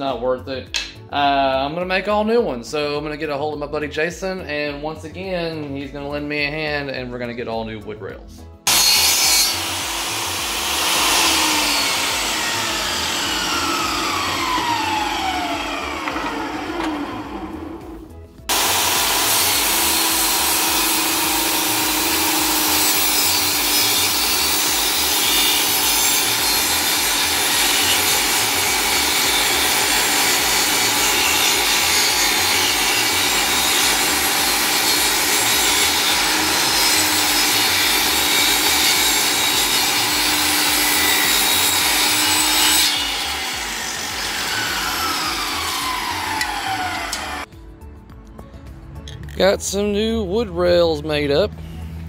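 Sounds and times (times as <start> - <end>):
table saw motor winding down: 8.7 - 47.5
table saw ripping wood: 8.7 - 47.5.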